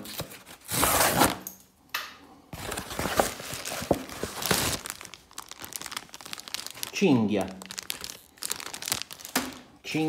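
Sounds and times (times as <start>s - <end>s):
cardboard flaps rustling: 2.6s - 6.8s
cardboard crackling: 2.6s - 9.7s.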